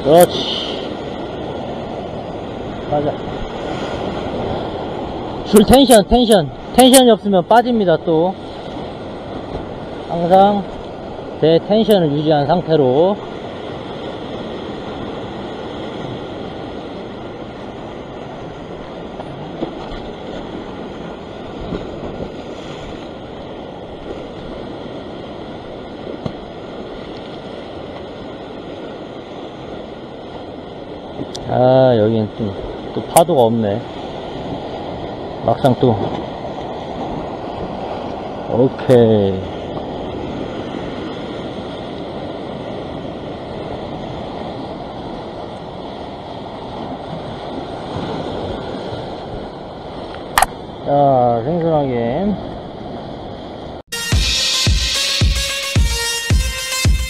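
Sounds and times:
waves breaking over rocks: 0.0 - 53.8.

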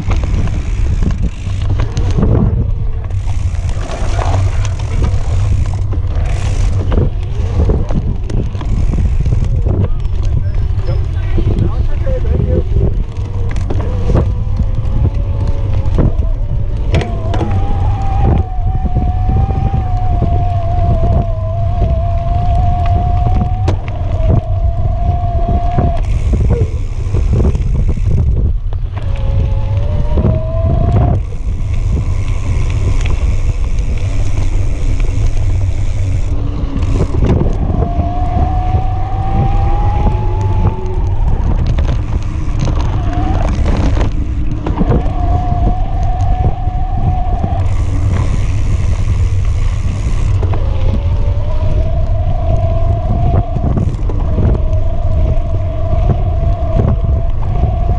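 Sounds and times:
wind rumble on microphone: 0.0 - 57.9
electric motor whine: 25.6 - 54.8.

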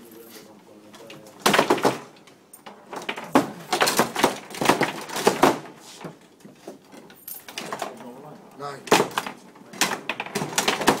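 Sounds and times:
foosball rods knocking: 1.4 - 6.2, 8.9 - 11.0
foosball ball clacking: 1.5 - 5.8, 8.9 - 11.0.

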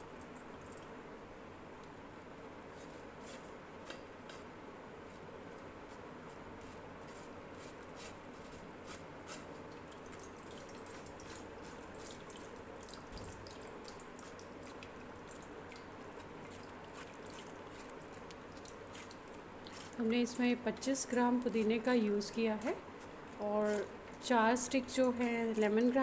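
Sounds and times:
juice dripping into bowl: 0.0 - 1.0, 9.7 - 20.1
wet pulp squishing: 9.9 - 20.1.

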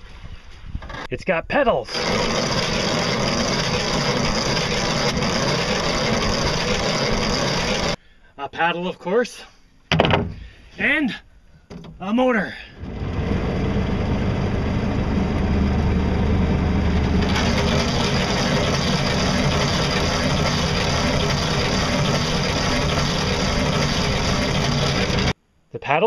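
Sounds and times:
electric motor hum: 1.9 - 8.0, 12.8 - 25.4.

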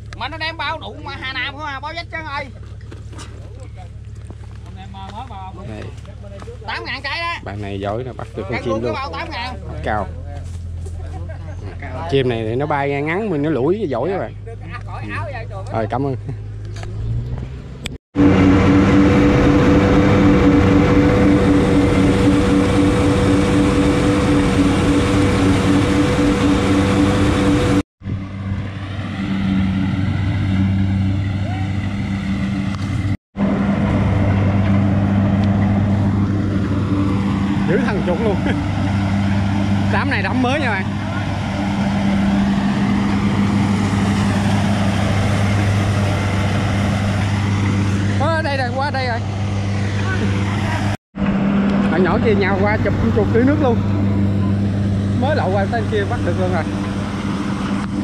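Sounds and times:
combine harvester engine running: 16.6 - 58.0.

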